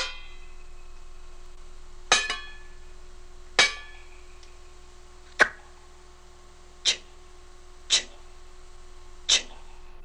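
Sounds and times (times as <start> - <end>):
ringing clinks of struck object: 2.1 - 2.8.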